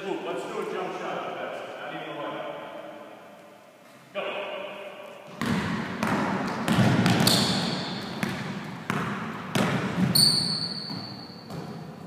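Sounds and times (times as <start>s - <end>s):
basketball dribbling on gym floor: 5.3s - 12.0s
high shoe squeaks: 7.2s - 8.2s, 10.0s - 11.5s.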